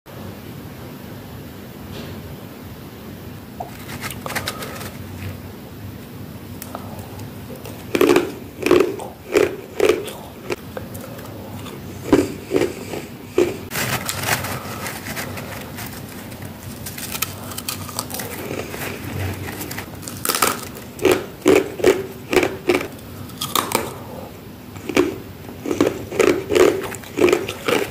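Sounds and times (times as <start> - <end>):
hands crunching frost: 3.6 - 5.3, 7.6 - 23.9
frost crackling: 3.6 - 5.5, 7.6 - 23.9.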